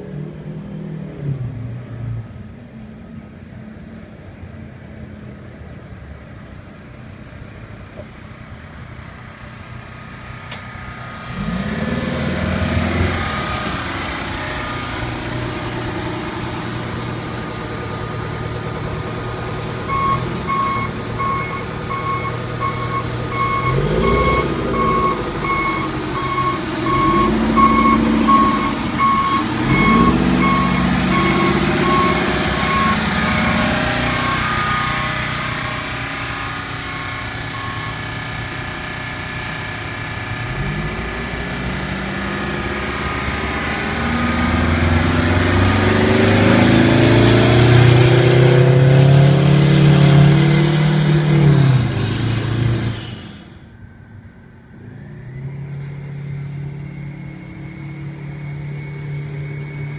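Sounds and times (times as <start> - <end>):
truck diesel engine revving: 6.2 - 53.7, 54.7 - 59.9
reversing alarm beeping: 19.8 - 38.3, 42.3 - 48.5, 54.9 - 59.9.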